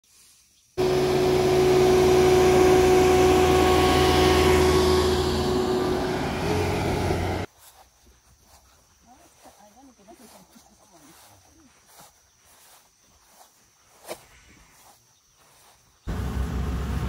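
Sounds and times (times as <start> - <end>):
combine harvester engine running: 0.8 - 7.5, 16.1 - 17.0.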